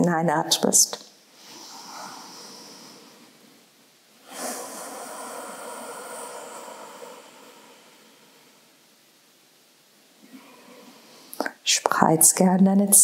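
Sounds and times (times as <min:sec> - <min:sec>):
woman breathing deeply: 0:01.3 - 0:08.9, 0:10.2 - 0:11.4.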